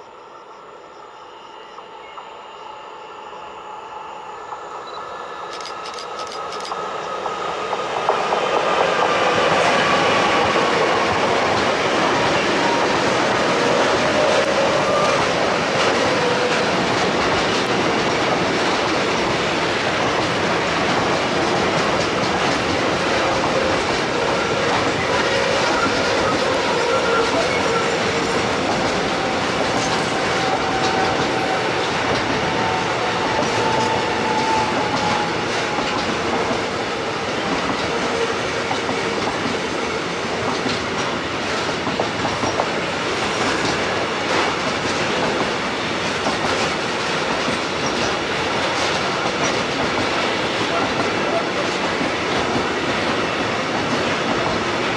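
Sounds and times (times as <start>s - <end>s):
freight train wheels clacking: 5.4s - 54.9s.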